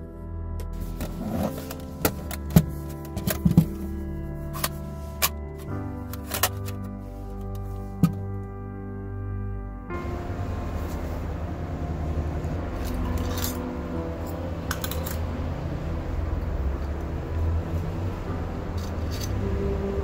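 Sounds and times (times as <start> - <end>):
background music: 0.0 - 20.0
hands rummaging through utensils: 0.8 - 8.2, 12.8 - 15.3, 18.8 - 19.5
metallic clinks and rattles: 18.8 - 19.4.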